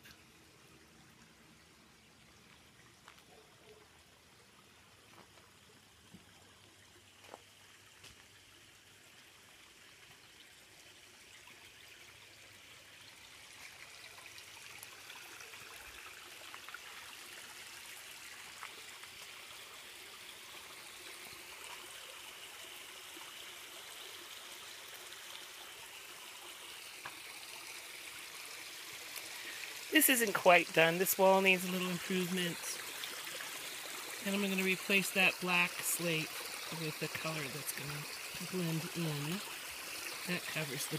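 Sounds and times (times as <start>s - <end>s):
water trickling over stones: 0.0s - 40.9s.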